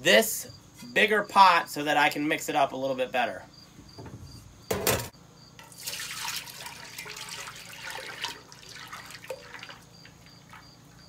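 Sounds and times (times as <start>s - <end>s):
crickets chirping: 0.1s - 11.0s
syrup pouring into pot: 5.7s - 10.7s.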